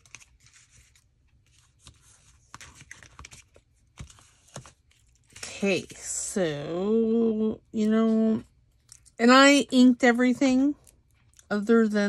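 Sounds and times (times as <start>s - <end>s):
paper rustling: 0.0s - 5.9s.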